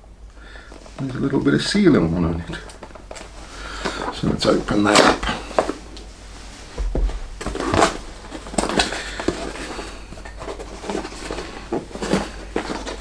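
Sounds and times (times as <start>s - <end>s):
cardboard box rustling: 6.7s - 13.0s.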